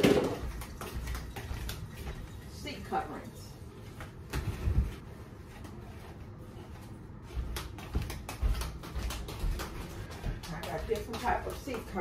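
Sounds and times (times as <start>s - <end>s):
footsteps on floor: 3.8s - 12.0s.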